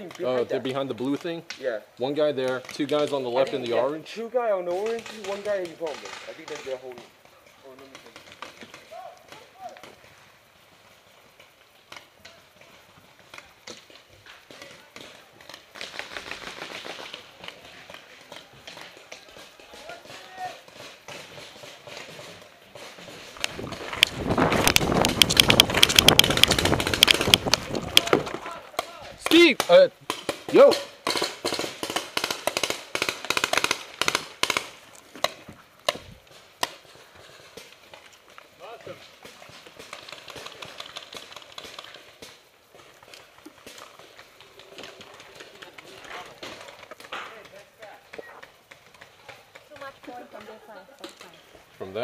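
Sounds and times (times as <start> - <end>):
paintball markers firing: 13.3 - 37.8.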